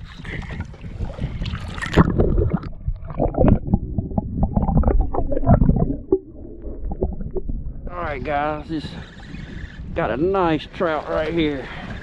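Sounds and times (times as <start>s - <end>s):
muffled underwater gurgling: 0.0s - 12.0s
water splashing and sloshing: 0.0s - 12.0s
dull underwater knocks: 0.3s - 9.0s.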